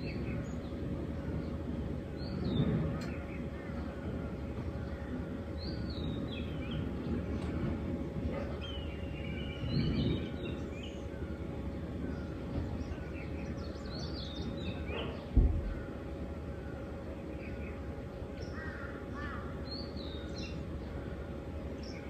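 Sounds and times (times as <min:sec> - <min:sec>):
birds chirping and trilling: 0:00.0 - 0:22.0
low background rumble: 0:00.0 - 0:22.0
low thump: 0:15.3 - 0:15.8.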